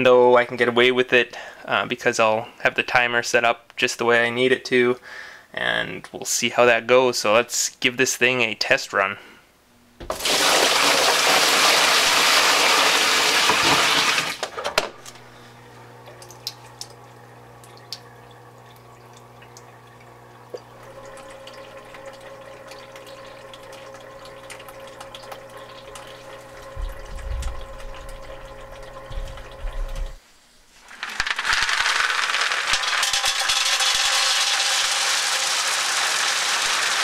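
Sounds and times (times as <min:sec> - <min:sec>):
pump humming: 0:10.0 - 0:30.2, 0:31.7 - 0:37.0
water trickling and dripping: 0:16.0 - 0:30.2
water rushing: 0:20.8 - 0:30.2.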